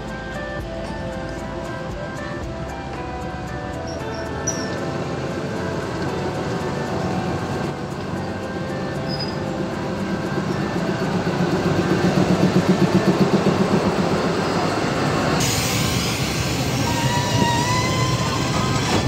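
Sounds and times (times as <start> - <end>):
locomotive engine rumble: 0.0 - 19.0
train wheels rushing on rails: 0.0 - 19.0
faint high squeal: 3.9 - 5.0, 8.6 - 11.8, 14.3 - 19.0.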